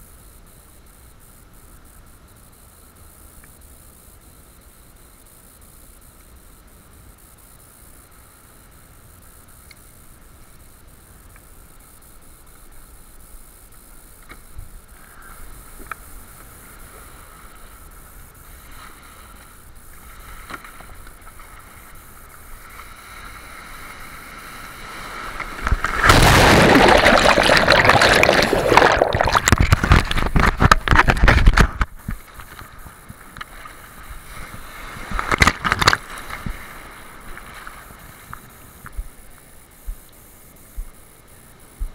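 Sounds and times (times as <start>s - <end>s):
wave rushing and splashing: 22.5s - 31.6s.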